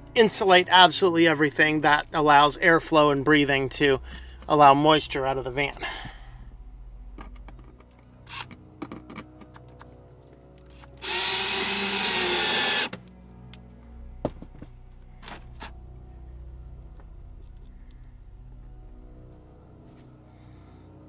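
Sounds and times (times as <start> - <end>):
cordless drill running: 11.0 - 13.0.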